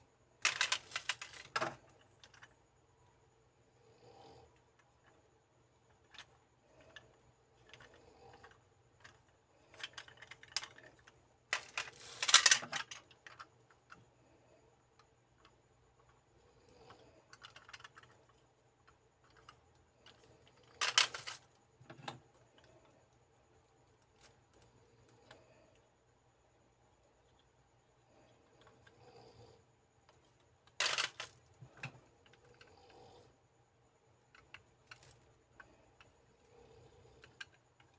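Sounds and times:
plastic clatters: 0.4s - 2.6s, 6.0s - 14.0s, 19.2s - 22.7s, 30.1s - 32.6s
plastic toys clicking and tapping: 0.4s - 2.6s, 5.9s - 14.1s, 16.8s - 22.7s, 30.1s - 33.0s, 34.3s - 36.2s, 37.2s - 37.9s.

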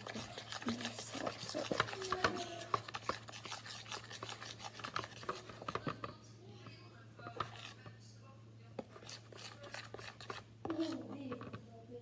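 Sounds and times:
slime scraping and clicking: 0.0s - 6.0s, 8.8s - 11.0s.

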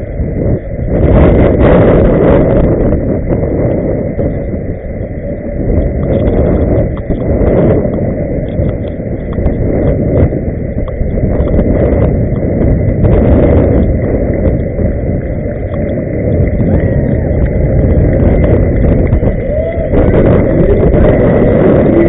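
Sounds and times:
wind on microphone: 0.0s - 22.0s
skate wheels rolling on pavement: 5.8s - 22.0s.

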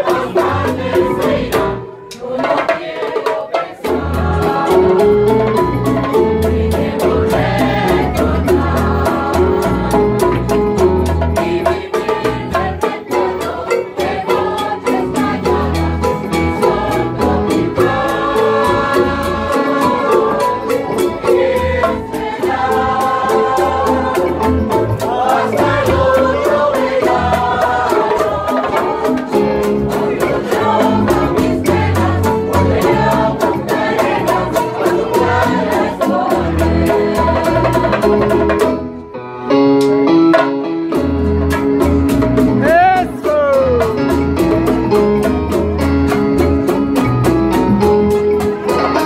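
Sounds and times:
group of voices singing: 0.0s - 38.8s
hand drums: 0.0s - 39.0s, 39.8s - 49.0s
strummed guitars: 3.7s - 49.0s.

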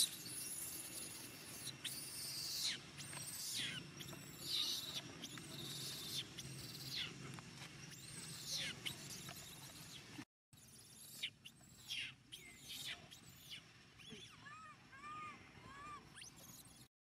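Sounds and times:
baby monkey crying: 0.0s - 7.1s, 11.1s - 16.7s.

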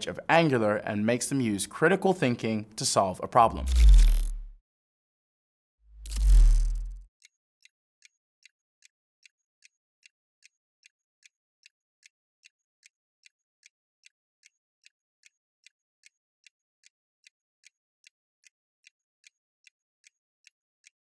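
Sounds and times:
faint clock ticking: 7.6s - 21.0s.

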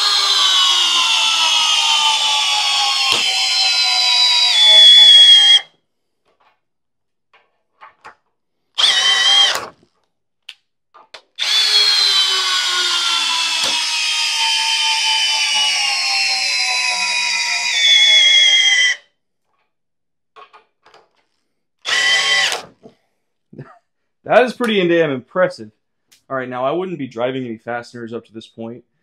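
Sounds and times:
drill motor whining: 0.0s - 5.6s, 8.8s - 9.7s, 11.4s - 19.0s, 21.8s - 22.7s.

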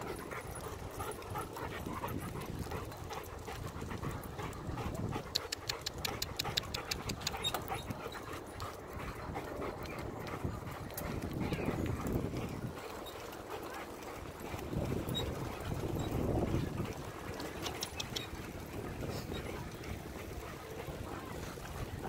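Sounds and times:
dog panting: 0.0s - 22.0s
tyre and path noise: 0.0s - 22.0s
sharp ticks: 5.2s - 7.7s.

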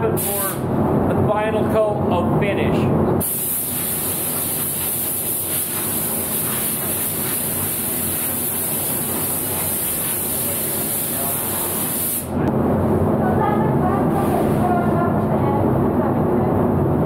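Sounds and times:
compressed air hissing from air gun: 0.2s - 0.6s, 3.2s - 12.4s.

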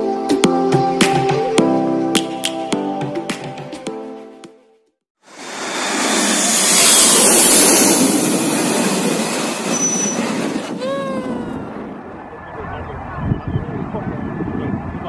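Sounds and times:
jet airliner passing overhead: 5.3s - 15.0s
jet engine whine: 5.3s - 15.0s.

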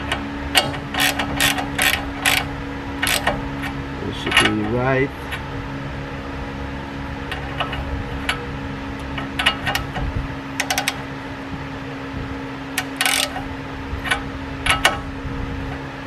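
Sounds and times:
ratchet clicking: 0.0s - 3.7s, 10.6s - 11.0s, 12.8s - 15.0s
steady hum: 0.0s - 16.0s.

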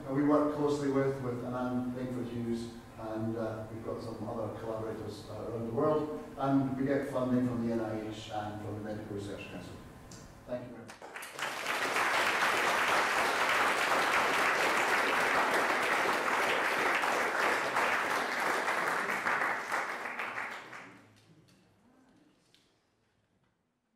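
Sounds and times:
audience applauding: 10.9s - 21.2s.

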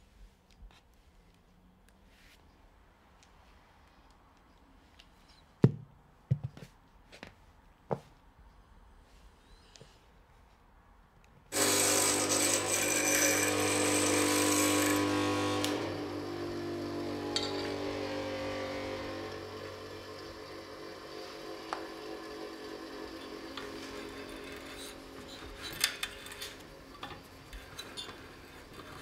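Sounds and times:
power tool humming: 11.5s - 29.0s.

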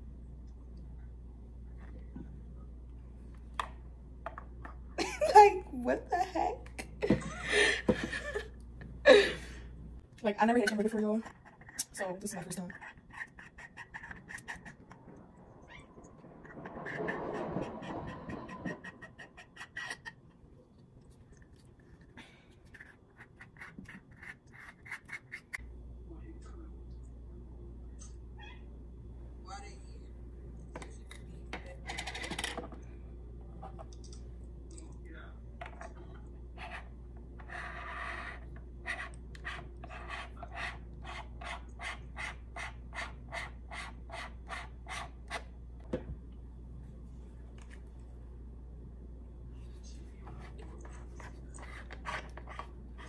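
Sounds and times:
scratchy strokes on camera lens: 16.4s - 20.0s.

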